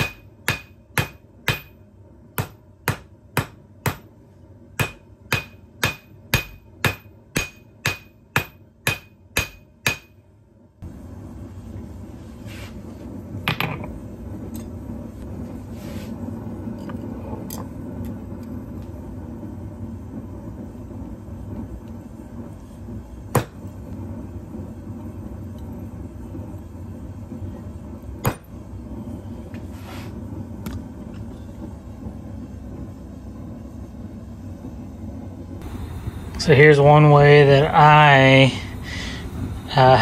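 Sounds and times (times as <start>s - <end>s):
hammer striking metal on anvil: 0.0s - 1.8s, 2.4s - 4.2s, 4.8s - 10.2s
forge burner rumbling: 0.0s - 40.0s.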